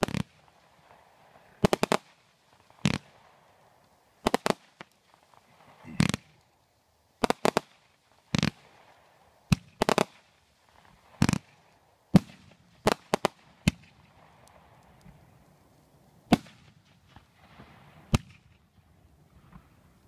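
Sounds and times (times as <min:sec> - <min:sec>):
fireworks bangs: 0:00.0 - 0:03.5, 0:04.2 - 0:06.4, 0:09.5 - 0:15.2.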